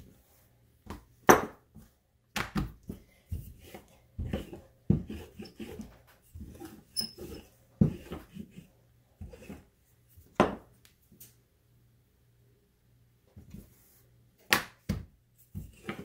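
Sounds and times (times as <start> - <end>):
rolling pin rubbing dough: 2.7 - 9.8, 15.4 - 16.0
rolling pin knocking on countertop: 10.4 - 10.7.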